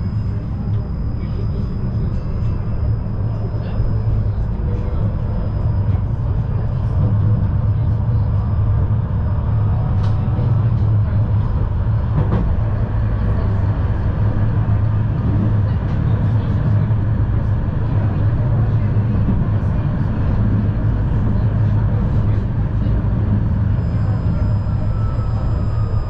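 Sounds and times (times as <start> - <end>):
tram wheels rumbling on rails: 0.0 - 26.0.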